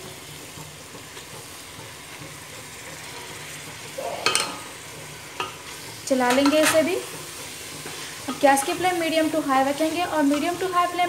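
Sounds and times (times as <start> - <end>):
food sizzling in a pot: 0.0 - 11.0
spatula clattering against pot: 0.9 - 9.4.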